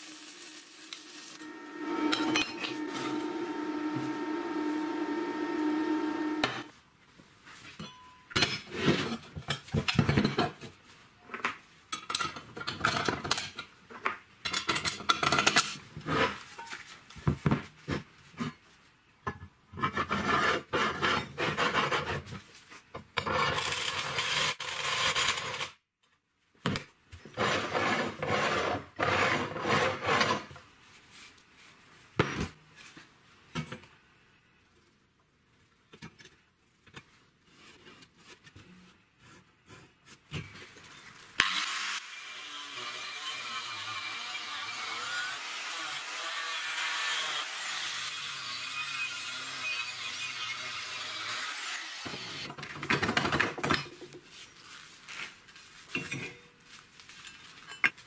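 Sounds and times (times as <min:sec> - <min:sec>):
hand tool rasping over steel: 0:01.4 - 0:06.7
steady humming tone: 0:01.4 - 0:06.7.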